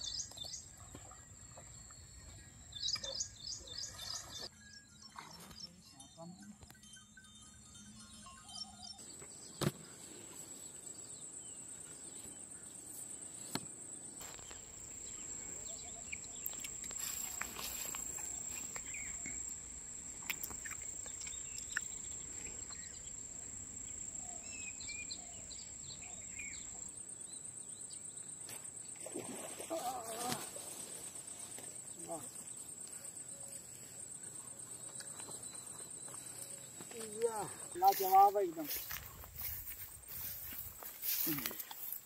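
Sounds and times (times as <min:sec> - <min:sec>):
bird chirps: 0:00.0 - 0:07.0, 0:14.2 - 0:19.6, 0:20.2 - 0:27.8
insects droning: 0:05.4 - 0:42.0.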